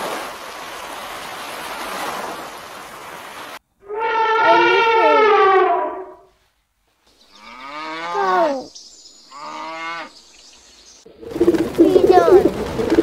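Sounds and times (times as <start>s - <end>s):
cow mooing: 3.8s - 6.2s, 7.3s - 8.6s, 9.3s - 10.1s
loud animal call: 3.8s - 6.3s
pigeons cooing: 11.2s - 13.0s.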